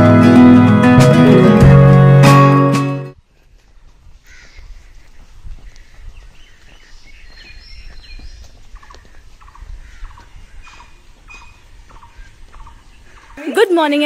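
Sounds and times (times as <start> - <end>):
birds chirping: 4.2 - 14.0.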